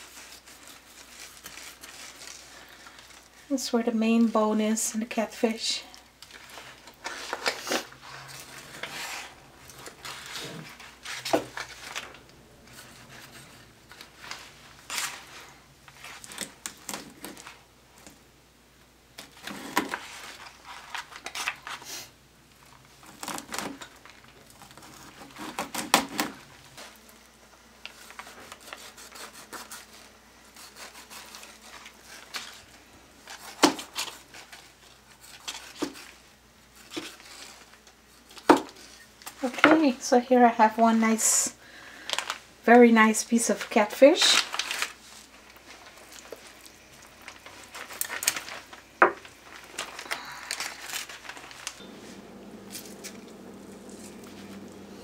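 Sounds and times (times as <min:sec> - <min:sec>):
knife scraping through fish flesh: 0:30.5 - 0:32.2.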